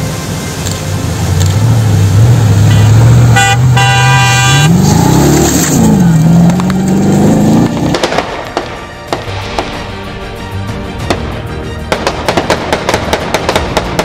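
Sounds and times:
engine revving: 0:00.0 - 0:08.3
vehicle horn honking: 0:02.7 - 0:04.8
sharp cracks: 0:07.6 - 0:09.9, 0:11.1 - 0:14.0.

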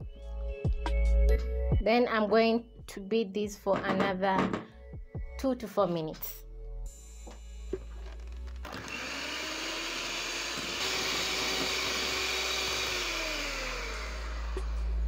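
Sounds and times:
electric hand mixer whirring: 0:08.5 - 0:15.0.

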